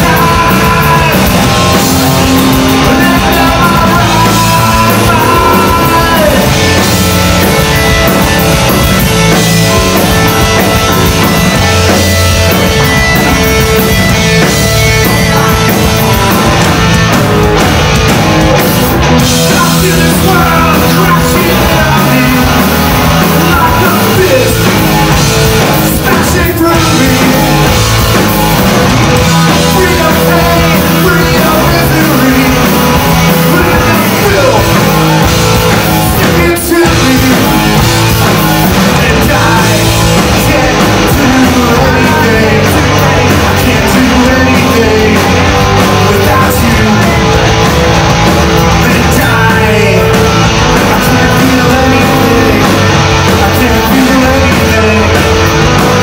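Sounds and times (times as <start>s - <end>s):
person singing into a microphone: 0.0s - 7.0s, 19.4s - 25.2s, 25.8s - 27.8s, 29.2s - 34.8s, 36.0s - 47.4s, 48.7s - 55.5s
live rock band playing: 0.0s - 56.0s.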